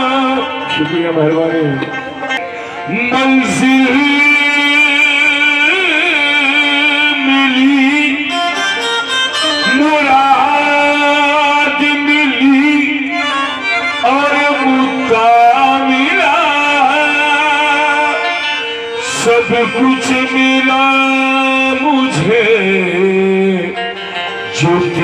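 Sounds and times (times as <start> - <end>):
man singing ornamented phrases: 0.0 - 2.0, 2.7 - 25.0
harmonium holding notes: 0.0 - 25.0.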